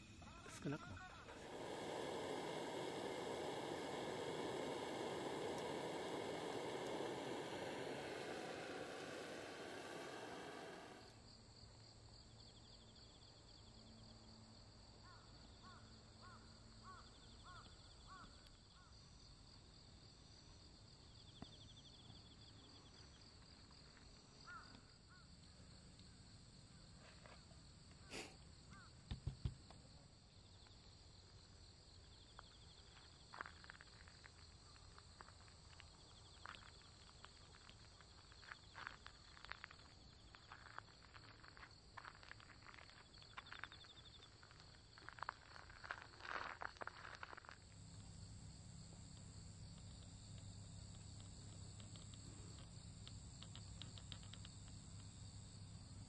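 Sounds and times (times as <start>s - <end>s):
hiss: 0.0s - 11.2s, 27.9s - 29.6s, 32.0s - 56.0s
insects trilling and chirping: 0.0s - 56.0s.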